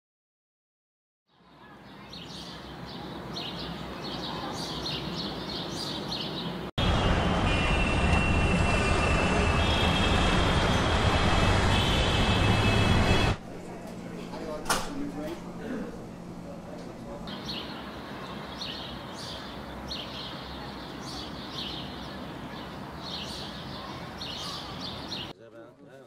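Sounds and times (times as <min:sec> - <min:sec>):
birds chirping: 0:01.3 - 0:11.0, 0:15.6 - 0:25.4
city traffic noise: 0:01.5 - 0:25.3
distant traffic hum: 0:01.8 - 0:25.3.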